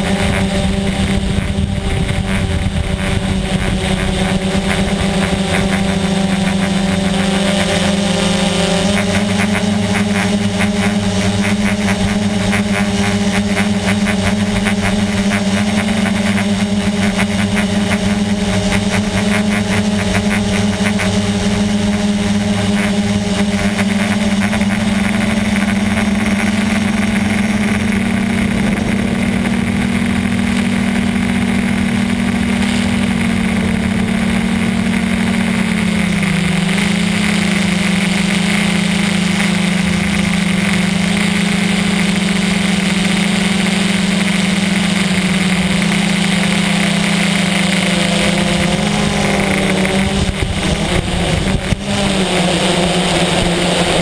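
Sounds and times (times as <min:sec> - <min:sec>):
drone propellers humming: 0:00.0 - 0:54.0.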